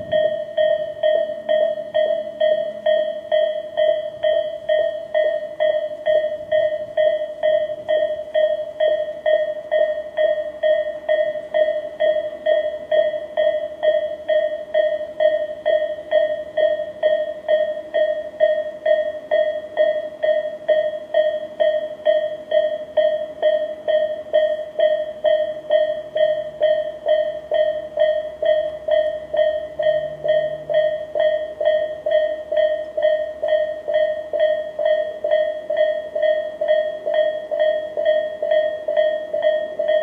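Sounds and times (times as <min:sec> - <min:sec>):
electronic level crossing bells: 0:22.6 - 0:40.0.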